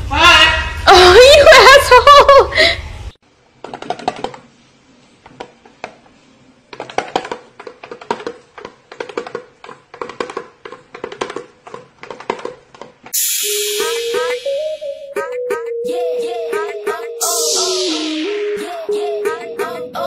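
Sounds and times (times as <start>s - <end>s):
bird tapping toy drum: 6.7s - 12.6s.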